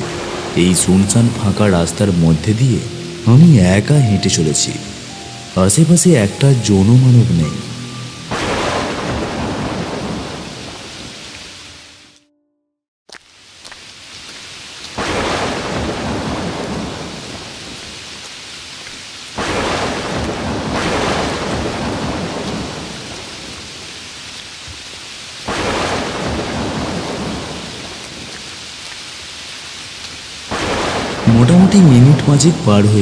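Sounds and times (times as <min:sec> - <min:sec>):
rain falling: 0:00.0 - 0:12.2, 0:13.1 - 0:33.0
thunder rolling: 0:08.3 - 0:10.7.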